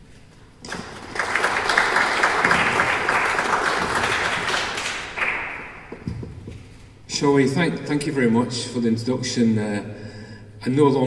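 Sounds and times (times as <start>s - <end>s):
small audience applauding: 0.6s - 6.0s.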